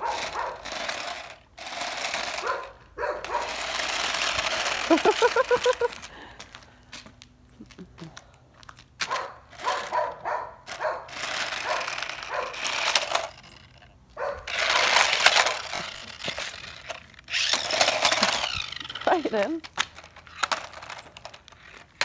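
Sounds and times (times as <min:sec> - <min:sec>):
toy car electric motors whirring: 0:00.0 - 0:06.3, 0:09.1 - 0:22.0.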